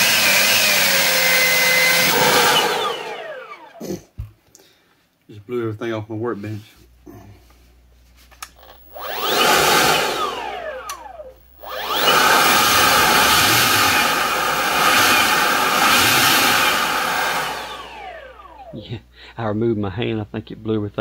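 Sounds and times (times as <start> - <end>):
leaf blower fan whining: 0.0 - 3.9, 8.5 - 19.0.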